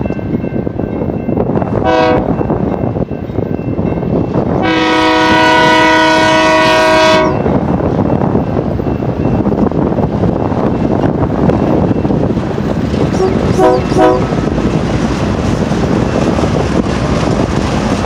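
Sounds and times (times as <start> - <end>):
train rumbling: 0.0 - 18.0
locomotive air horn blasts: 1.8 - 2.4, 4.6 - 7.5, 13.2 - 14.3.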